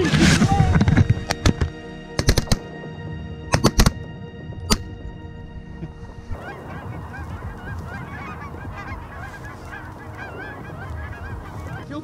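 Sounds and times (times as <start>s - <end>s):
geese honking: 5.4s - 12.0s.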